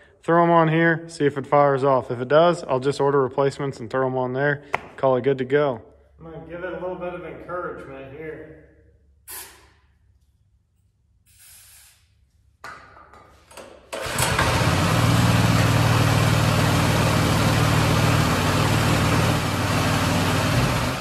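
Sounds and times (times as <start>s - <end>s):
spray hiss: 9.3s - 9.8s, 11.3s - 12.2s
recoil starter pulls: 13.5s - 16.7s
small engine running: 14.0s - 21.0s.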